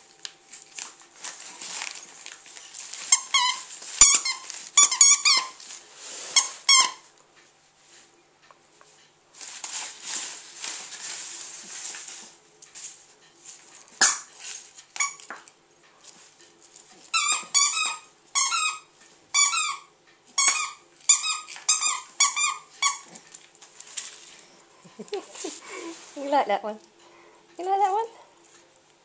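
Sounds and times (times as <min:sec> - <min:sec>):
wrapping paper crinkling: 0:00.0 - 0:07.1, 0:09.3 - 0:17.2, 0:21.4 - 0:26.3
squeaky toy squeaking: 0:03.1 - 0:05.6, 0:06.4 - 0:07.1, 0:17.1 - 0:23.2.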